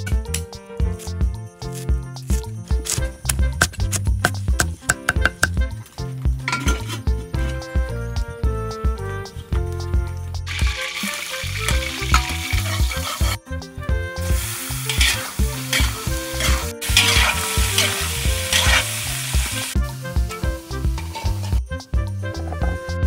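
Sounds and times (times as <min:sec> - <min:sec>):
metal spatula scraping wok: 0:06.4 - 0:07.2, 0:10.6 - 0:13.4, 0:14.2 - 0:21.6
meat sizzling in hot oil: 0:10.5 - 0:13.4, 0:14.2 - 0:21.6.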